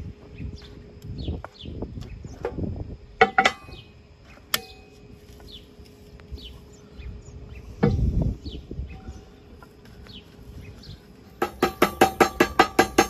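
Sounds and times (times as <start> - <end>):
bird chirps: 3.6 - 11.4.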